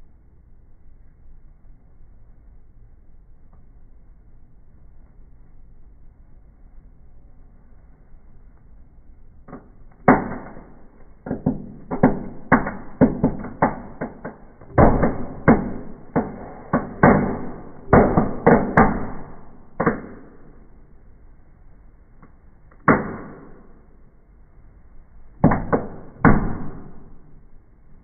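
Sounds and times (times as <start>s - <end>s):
fireworks bangs and pops: 9.5s - 20.7s, 25.4s - 27.4s.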